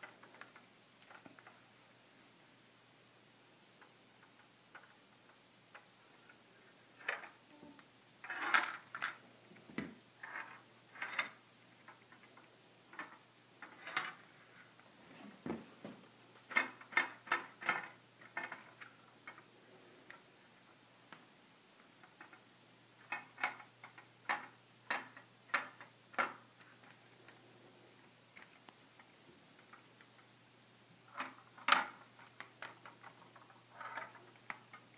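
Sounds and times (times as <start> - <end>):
ball rolling on plastic track: 8.2 - 9.2, 10.2 - 14.3, 16.5 - 19.4, 31.1 - 34.8.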